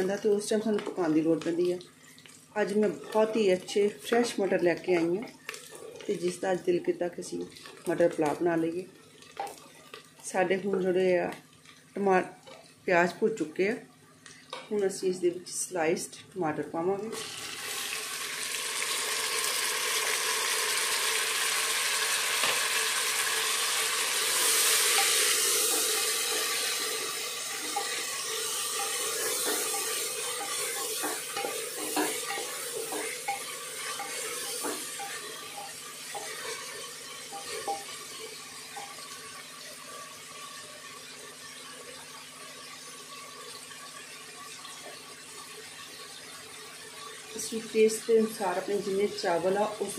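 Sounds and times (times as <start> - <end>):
tomatoes sizzling in hot oil: 0.0 - 13.7, 16.8 - 49.9.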